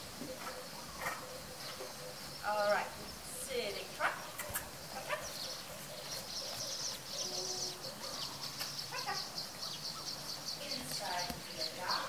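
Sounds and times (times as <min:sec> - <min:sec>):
quick bird chirps: 0:04.2 - 0:12.0.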